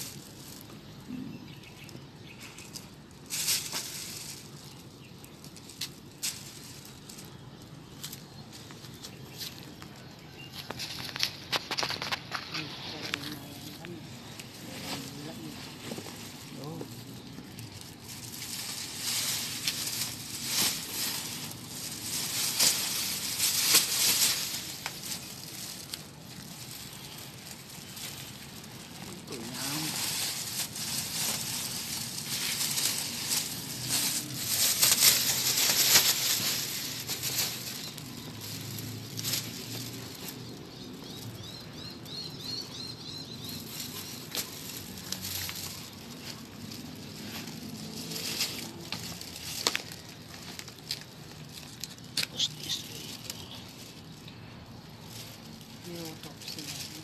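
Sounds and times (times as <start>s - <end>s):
dry debris rustling and scraping: 0.0s - 57.0s
steady outdoor hiss: 0.0s - 57.0s
sharp crackles and clicks: 16.1s - 54.4s.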